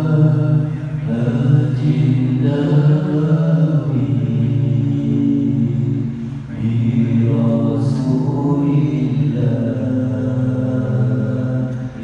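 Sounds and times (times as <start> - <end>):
men chanting into microphones: 0.0 - 12.0.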